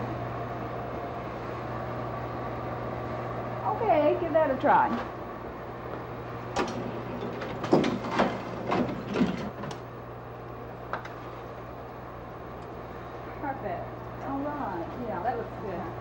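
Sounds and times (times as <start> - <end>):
steady low hum: 0.0 - 16.0
printing press knocks and clatters: 6.5 - 9.8.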